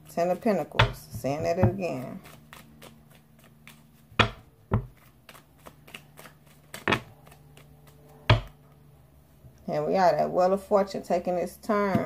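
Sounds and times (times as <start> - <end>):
playing cards being shuffled: 0.2 - 8.8.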